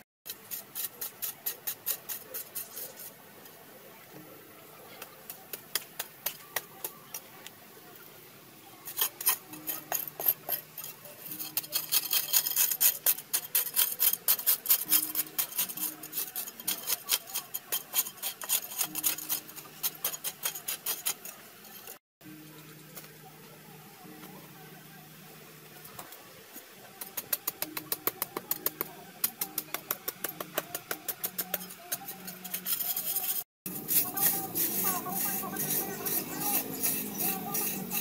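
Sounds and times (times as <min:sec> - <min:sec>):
metal hoe scraping dry soil: 0:00.3 - 0:03.2, 0:08.8 - 0:22.0, 0:27.1 - 0:38.0.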